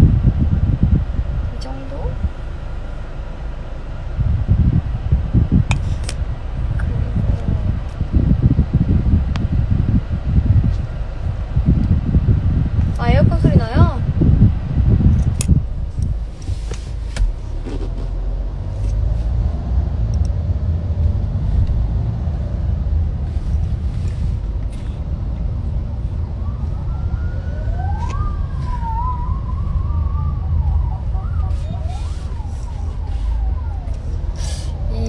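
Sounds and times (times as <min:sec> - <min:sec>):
car cabin rumble: 0:00.0 - 0:35.0
siren wailing: 0:25.6 - 0:35.0.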